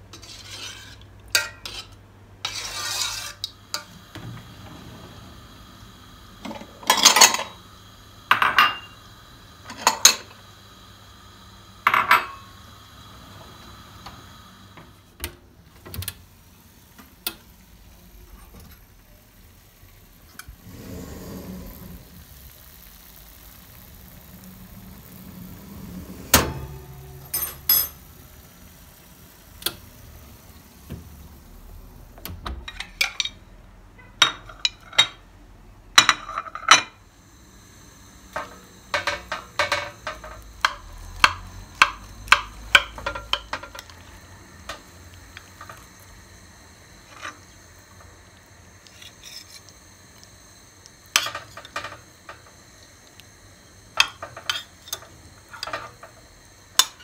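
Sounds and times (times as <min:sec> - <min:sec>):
metal spatula scraping glass dish: 0:00.1 - 0:03.9, 0:48.8 - 0:49.7
kitchenware clinking: 0:06.5 - 0:07.6, 0:26.4 - 0:28.0, 0:32.6 - 0:33.4, 0:34.2 - 0:35.2, 0:38.4 - 0:43.9, 0:54.0 - 0:56.1, 0:56.7 - 0:57.0.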